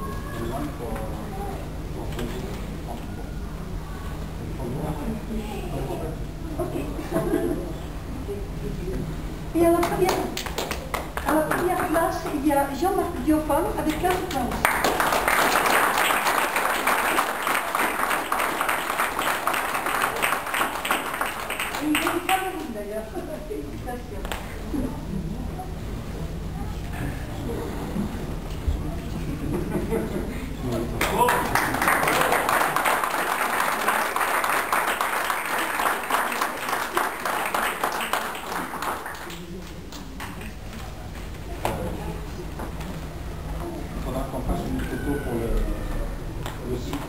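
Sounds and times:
audience applauding: 0:09.8 - 0:12.4, 0:13.9 - 0:22.8, 0:31.0 - 0:40.8.

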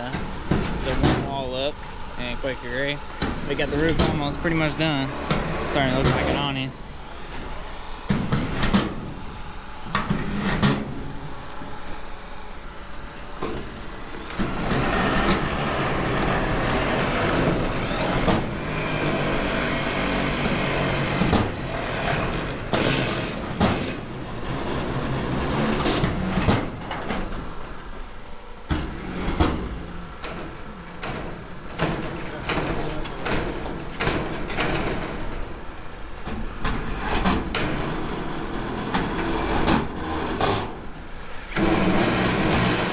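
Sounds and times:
constant low rumble: 0:00.0 - 0:20.6, 0:21.2 - 0:42.1
mechanical noise: 0:00.0 - 0:42.9.

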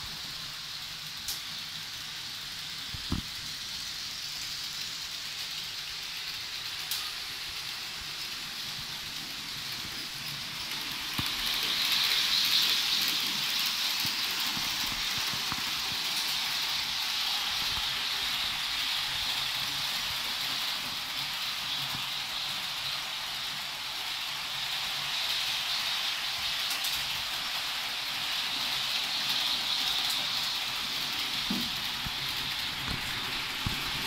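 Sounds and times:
model trains whirring on rails: 0:00.0 - 0:34.0.

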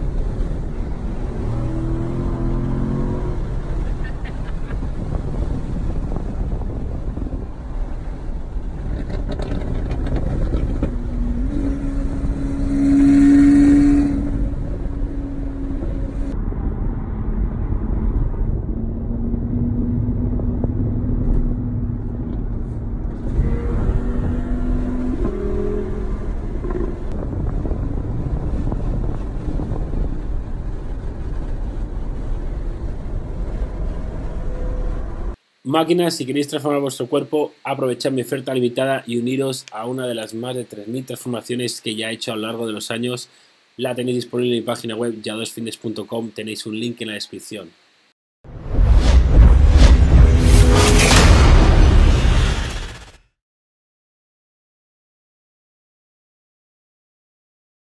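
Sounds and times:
car engine drone: 0:00.0 - 0:35.6, 0:48.5 - 0:53.2
road noise: 0:00.0 - 0:35.6, 0:47.7 - 0:53.2.

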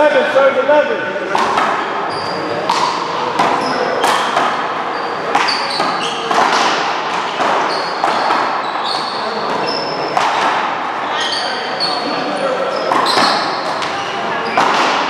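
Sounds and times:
rubber ball hits echoing: 0:01.2 - 0:08.8, 0:09.4 - 0:10.9, 0:12.8 - 0:15.0
sneaker squeaks on court: 0:01.8 - 0:10.2, 0:11.1 - 0:15.0.

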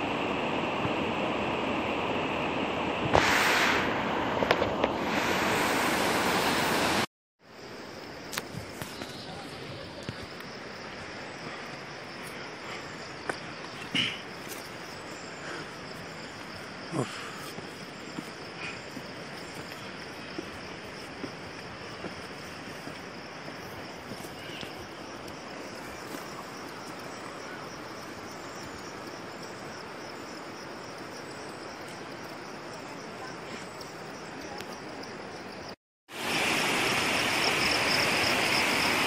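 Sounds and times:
insect chorus drone: 0:07.4 - 0:39.0
footsteps on stone steps: 0:13.2 - 0:14.9, 0:15.6 - 0:27.4.

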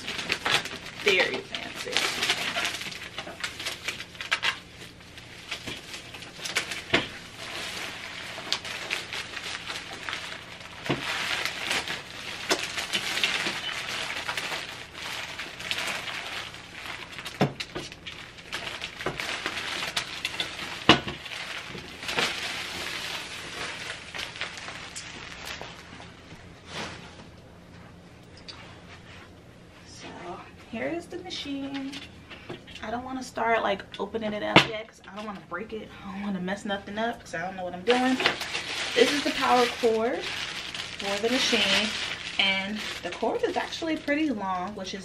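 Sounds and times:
plastic wrap crinkling: 0:00.0 - 0:27.4, 0:37.0 - 0:45.0.

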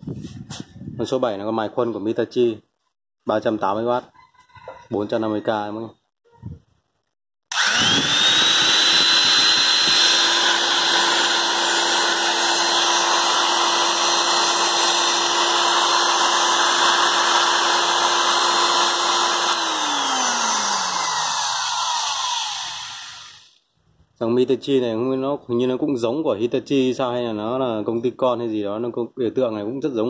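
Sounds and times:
die grinder motor whine: 0:07.5 - 0:23.6.

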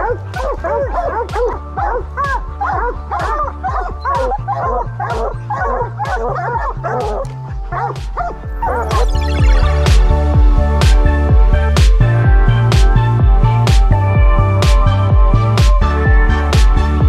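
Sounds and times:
dogs barking and yipping: 0:00.0 - 0:09.5
background music with steady beat: 0:00.0 - 0:17.0.

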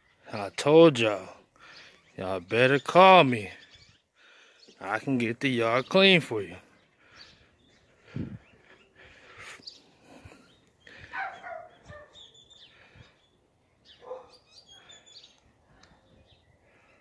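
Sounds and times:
small birds chirping: 0:00.0 - 0:17.0
dog barking: 0:11.1 - 0:12.2, 0:14.0 - 0:14.4.

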